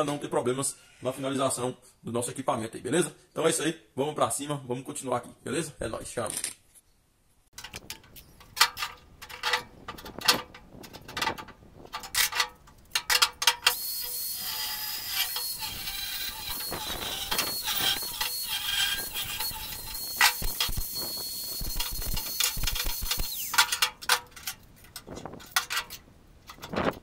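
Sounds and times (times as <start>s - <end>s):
angle grinder on steel: 13.6s - 23.8s.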